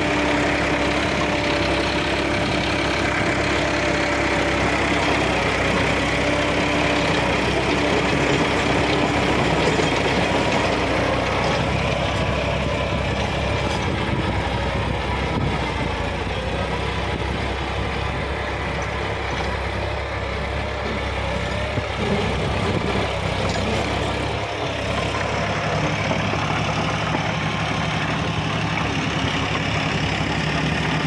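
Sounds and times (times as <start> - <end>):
rotavator churning soil: 0.0 - 16.2, 16.9 - 31.0
tractor engine running under load: 0.0 - 31.0.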